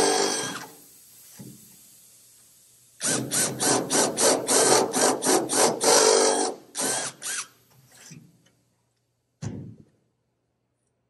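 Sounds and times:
cordless drill cutting aluminium: 0.0 - 0.7, 3.0 - 7.5.

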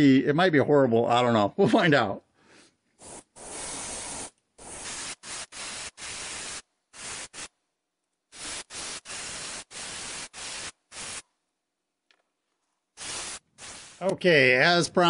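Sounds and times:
airbrush hiss bursts: 3.0 - 7.5, 8.3 - 11.2, 13.0 - 14.1.

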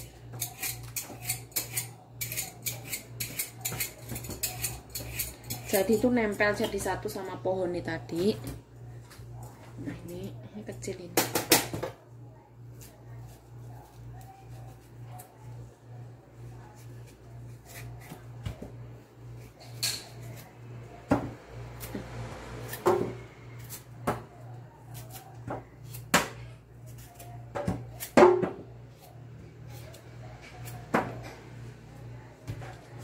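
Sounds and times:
knife scraping taro: 0.0 - 6.8, 16.6 - 18.3, 19.3 - 20.5, 24.8 - 26.2, 28.9 - 31.0.

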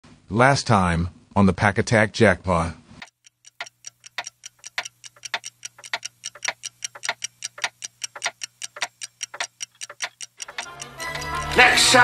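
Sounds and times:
faint steady hum: 2.8 - 11.0
rapid uneven ticking: 3.0 - 12.0.

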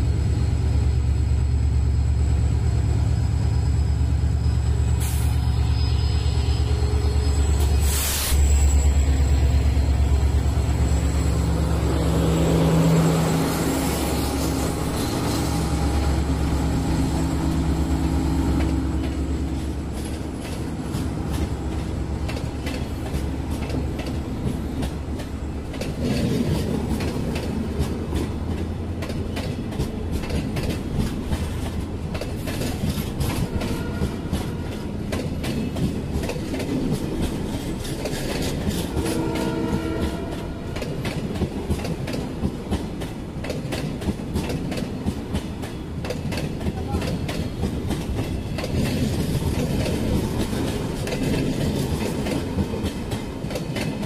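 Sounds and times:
train wheels clicking over rail joints: 18.4 - 54.0.

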